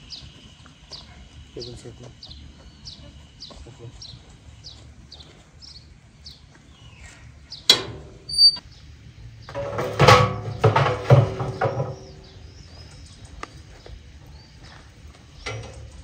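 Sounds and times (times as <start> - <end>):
birds chirping: 0.0 - 16.0
metal baking tray clanking: 9.6 - 12.3.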